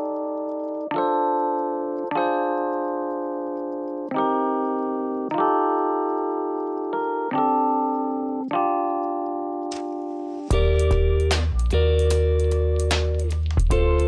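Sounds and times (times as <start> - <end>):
slow piano chords: 0.0 - 14.0.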